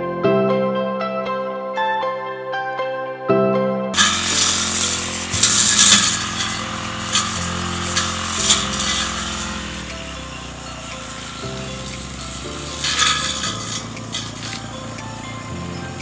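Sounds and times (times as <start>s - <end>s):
blade slashing through grass: 4.0s - 16.0s
brush cutter engine running: 4.0s - 16.0s.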